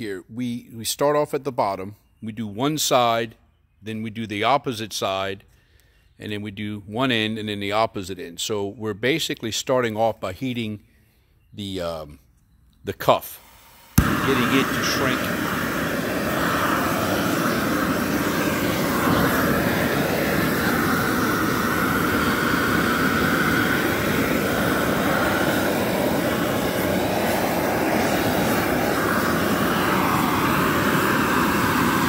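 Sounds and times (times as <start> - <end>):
heat gun flame rushing: 13.4 - 32.0.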